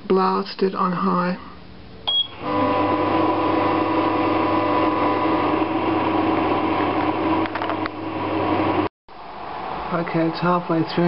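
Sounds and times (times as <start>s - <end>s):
microwave oven humming: 2.0s - 8.9s
microwave button beep: 2.1s - 2.4s.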